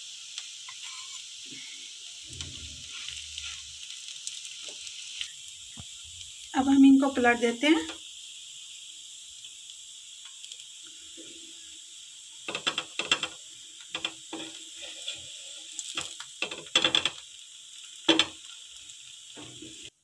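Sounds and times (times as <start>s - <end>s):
toast sizzling in fat: 0.0s - 20.0s
spatula scraping and knocking on pan: 12.5s - 17.2s, 18.1s - 18.4s.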